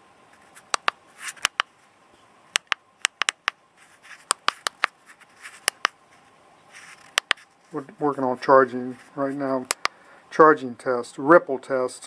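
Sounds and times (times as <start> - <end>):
handling rustles: 0.3 - 2.3, 3.7 - 9.9.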